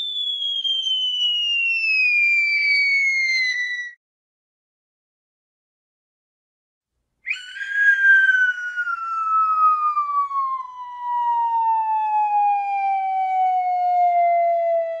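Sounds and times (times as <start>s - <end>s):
falling whistle: 0.0s - 4.0s, 7.3s - 15.0s.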